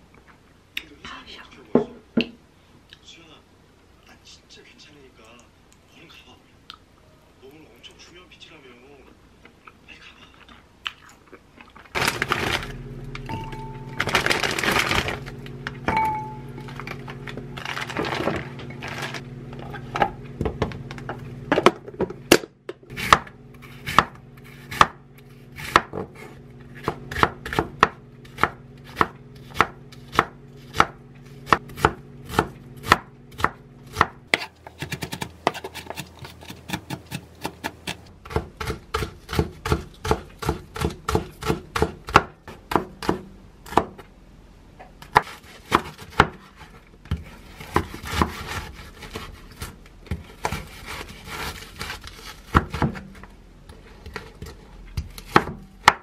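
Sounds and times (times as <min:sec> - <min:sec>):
knife chopping on wooden board: 0:21.5 - 0:25.0, 0:25.6 - 0:44.0, 0:45.0 - 0:46.4, 0:47.1 - 0:53.0.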